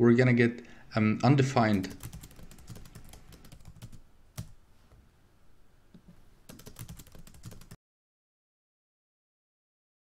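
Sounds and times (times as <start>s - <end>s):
typing on computer keyboard: 1.6s - 4.6s, 6.5s - 7.8s.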